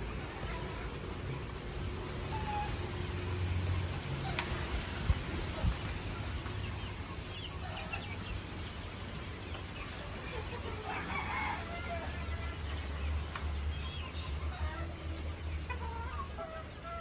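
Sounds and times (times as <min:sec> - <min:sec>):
rooster crowing: 0:10.8 - 0:12.6.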